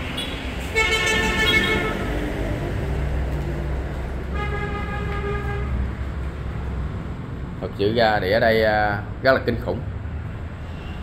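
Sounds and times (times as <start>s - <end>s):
low traffic rumble: 0.0s - 11.0s
vehicle horns honking: 0.1s - 2.2s, 4.3s - 5.8s.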